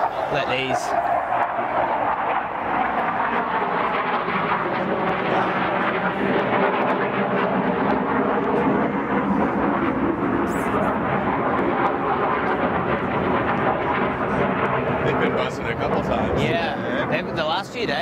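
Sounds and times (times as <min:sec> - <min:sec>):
people talking: 0:00.0 - 0:01.0, 0:15.1 - 0:18.0
aircraft engine noise: 0:00.0 - 0:18.0.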